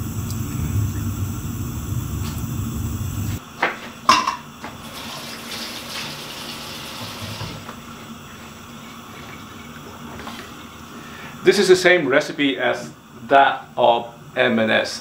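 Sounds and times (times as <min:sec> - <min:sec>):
steady low rumble: 0:00.0 - 0:03.4.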